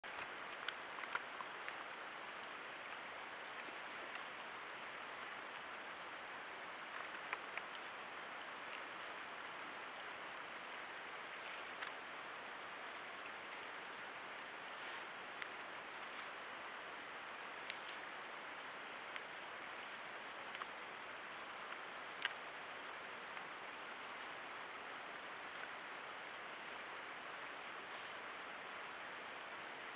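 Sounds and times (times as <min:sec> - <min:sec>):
steady low hiss: 0:00.0 - 0:29.9
branches clicking and snapping: 0:00.1 - 0:01.8.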